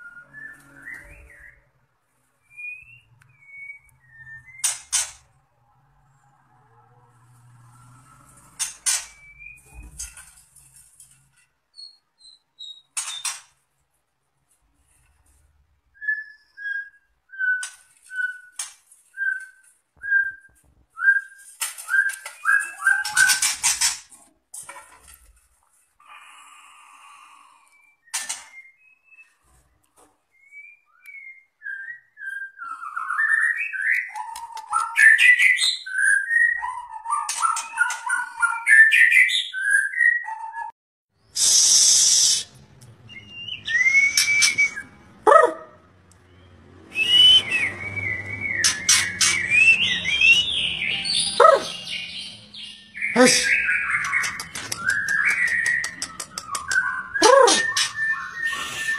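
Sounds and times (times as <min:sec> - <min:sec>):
bird singing whistled phrases: 0:00.0 - 0:01.7, 0:02.5 - 0:04.8, 0:16.0 - 0:23.5, 0:43.1 - 0:45.0, 0:46.3 - 0:58.9
harsh hiss: 0:41.4 - 0:42.5.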